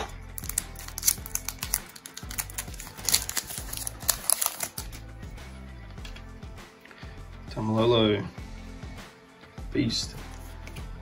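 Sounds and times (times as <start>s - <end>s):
trading cards clicking and snapping: 0.0s - 5.0s
background music with low notes: 0.0s - 11.0s.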